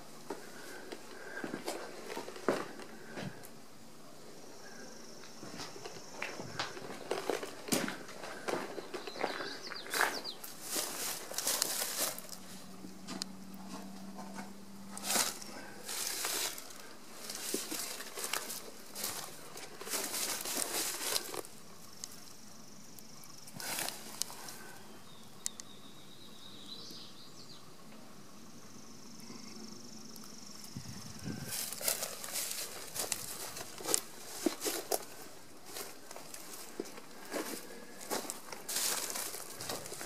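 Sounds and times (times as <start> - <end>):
footsteps crunching on mulch: 5.4 - 21.5, 23.5 - 24.8, 31.3 - 40.0.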